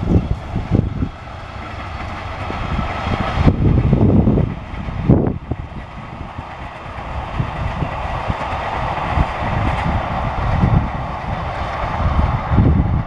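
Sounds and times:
train wheels on rails: 0.0 - 13.0
wind buffeting microphone: 0.0 - 13.0.

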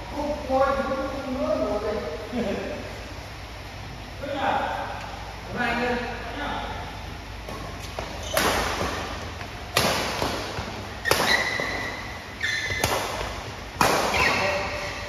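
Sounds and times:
racket hitting shuttlecock: 7.5 - 15.0
shoe squeaks on court: 7.8 - 8.5, 11.0 - 12.8.

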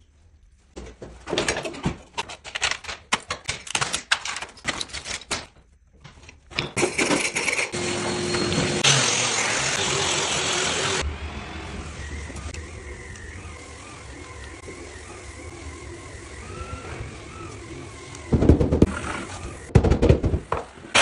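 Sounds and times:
power sander running: 7.8 - 19.7.

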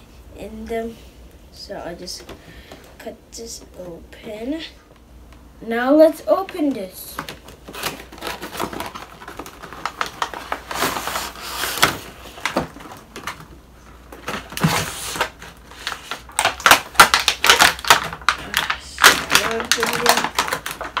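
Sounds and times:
plastic tray crinkling and clicking: 6.4 - 10.7, 11.8 - 21.0.

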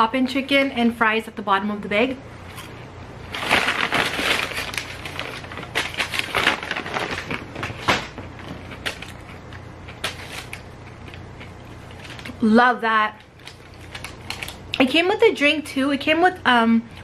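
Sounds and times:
paper bag crinkling: 3.2 - 12.5, 13.2 - 14.8.

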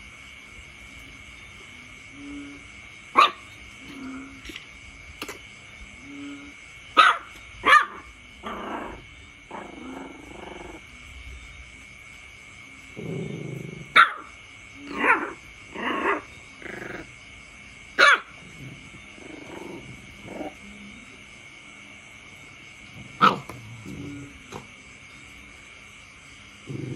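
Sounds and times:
dog growling barks: 7.0 - 10.8, 13.0 - 17.1, 18.0 - 20.6, 23.2 - 24.3, 26.6 - 26.9.

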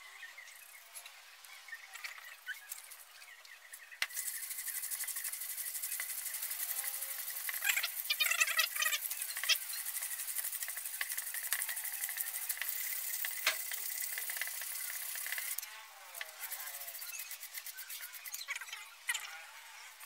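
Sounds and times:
sandpaper scratching on bamboo: 4.0 - 18.6.

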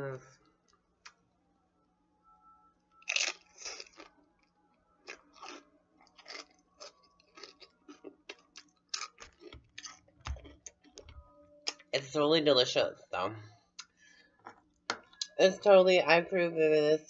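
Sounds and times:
person chewing crunchy food: 3.0 - 10.8.

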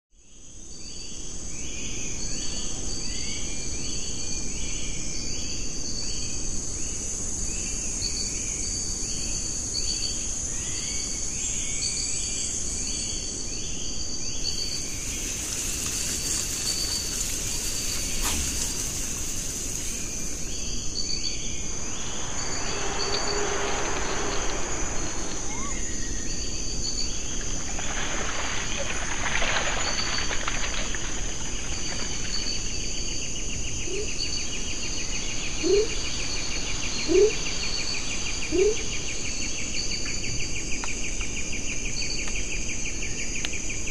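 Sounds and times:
insects shrilling: 14.3 - 33.3
high insect buzz: 14.4 - 28.1.

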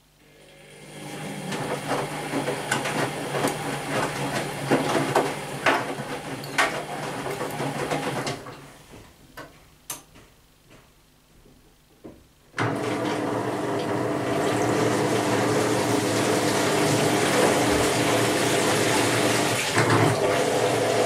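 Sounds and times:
washing machine motor hum: 0.2 - 9.1, 12.5 - 21.0
laundry sloshing in water: 14.2 - 20.7.

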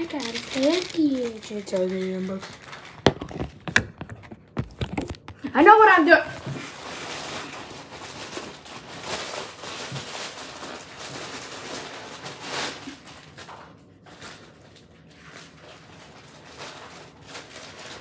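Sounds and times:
plastic bag ripping: 0.0 - 5.5, 6.2 - 18.0
plastic bag crinkling: 0.0 - 18.0.

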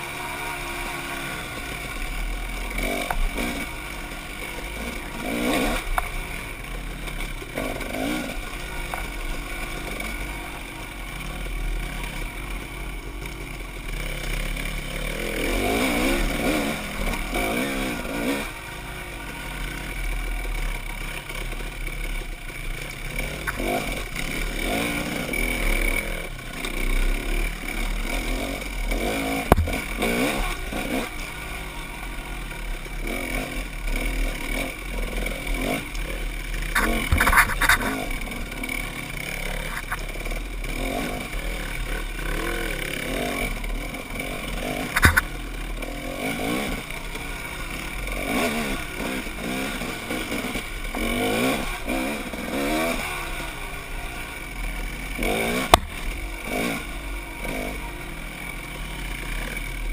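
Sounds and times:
dirt bike engine revving: 0.0 - 59.9
sharp knocks: 29.5 - 29.8, 45.0 - 45.3.

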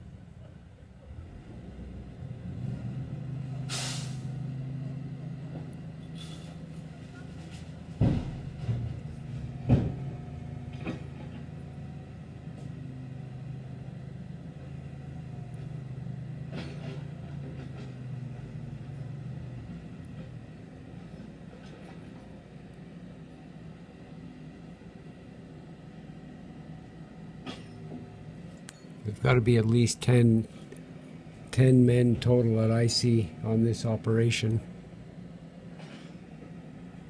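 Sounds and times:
diesel engines running: 0.0 - 37.0
air brake hiss: 3.7 - 4.3, 6.1 - 6.6
loud bangs of asphalt loading: 7.9 - 11.4.

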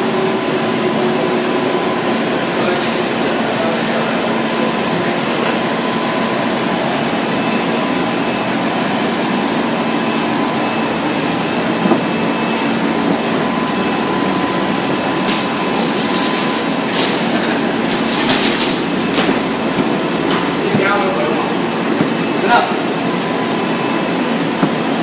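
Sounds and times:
machinery motors and conveyor whirring: 0.0 - 25.0.

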